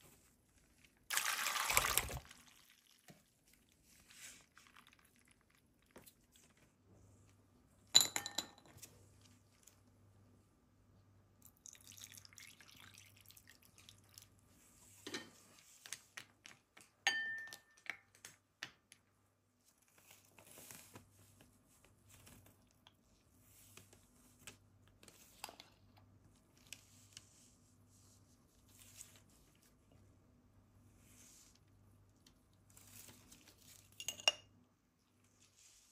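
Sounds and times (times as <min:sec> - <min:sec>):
glass bowl clink: 0:08.0 - 0:08.7, 0:17.1 - 0:17.8, 0:33.9 - 0:34.5.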